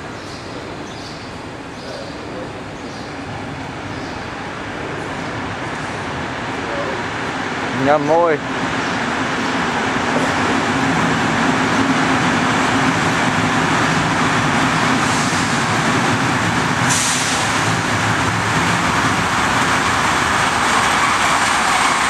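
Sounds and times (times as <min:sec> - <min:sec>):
train rumbling: 0:00.0 - 0:22.0.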